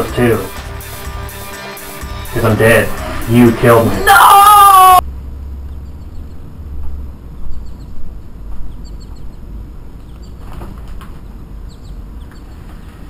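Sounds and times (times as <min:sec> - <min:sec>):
faint bird chirps: 0:05.6 - 0:06.5, 0:07.4 - 0:10.4, 0:11.2 - 0:13.0.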